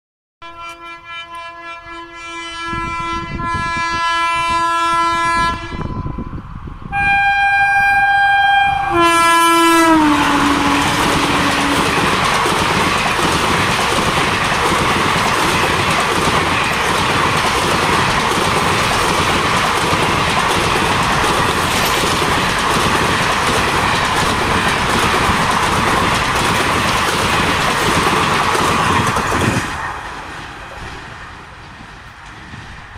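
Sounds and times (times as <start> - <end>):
locomotive horn blasts: 0.4 - 6.3, 6.9 - 12.1
express train rushing by: 0.5 - 32.9.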